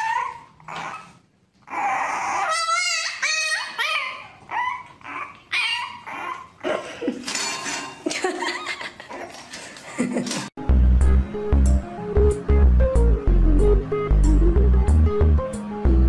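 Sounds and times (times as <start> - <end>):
puppy whining and yelping: 0.0 - 6.8.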